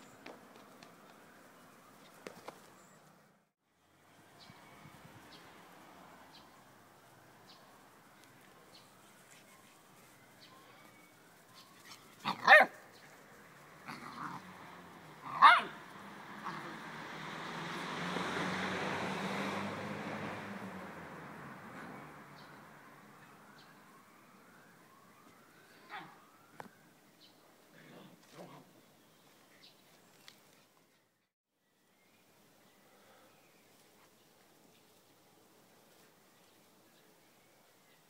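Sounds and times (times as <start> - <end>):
dog barking: 12.2 - 12.8, 15.3 - 15.8, 25.9 - 26.2.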